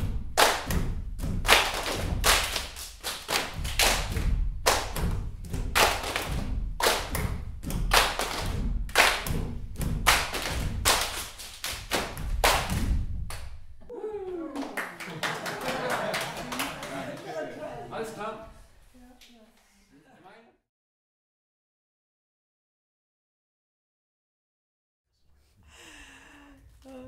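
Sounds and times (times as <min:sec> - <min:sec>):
hands clapping in rhythm: 0:00.0 - 0:13.7, 0:14.4 - 0:17.5.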